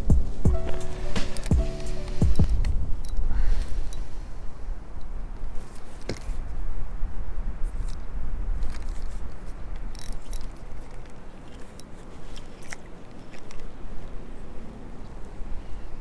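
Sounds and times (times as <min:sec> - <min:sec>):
wind buffeting microphone: 0:00.0 - 0:11.5.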